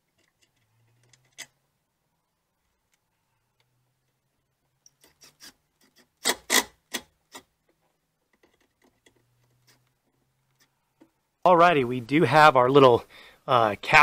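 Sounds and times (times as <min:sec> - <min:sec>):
tool and plastic clicks and scrapes: 0:00.0 - 0:01.6, 0:04.8 - 0:11.2.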